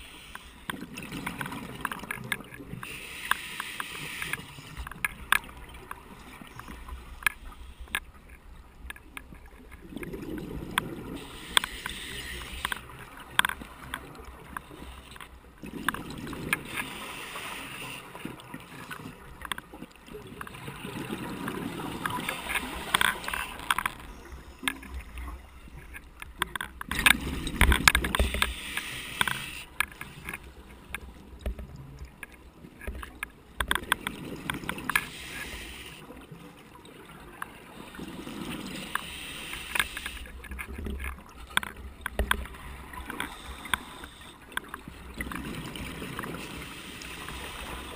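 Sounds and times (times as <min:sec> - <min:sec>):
diver breathing through regulator: 0:28.1 - 0:30.2.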